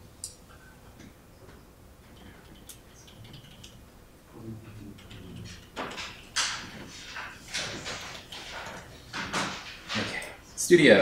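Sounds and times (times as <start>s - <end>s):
faint low murmur: 0.1s - 5.8s
keyboard and mouse clicks: 2.1s - 3.8s, 4.8s - 6.7s.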